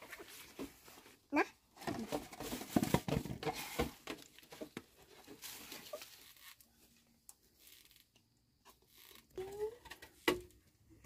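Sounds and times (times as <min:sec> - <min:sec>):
plastic bag rustling: 0:01.8 - 0:07.0.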